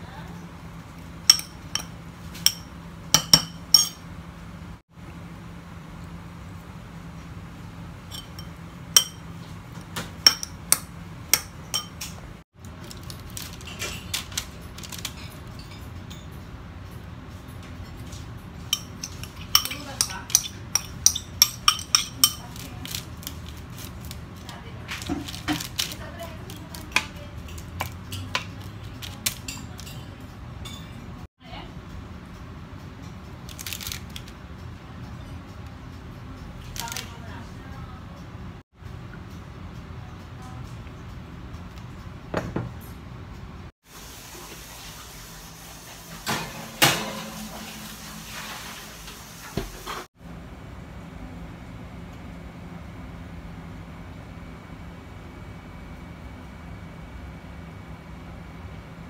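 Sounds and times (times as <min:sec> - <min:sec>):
metal spoon clinking ceramic bowl: 0:01.3 - 0:04.1, 0:08.1 - 0:09.2, 0:10.2 - 0:12.2, 0:18.7 - 0:23.0.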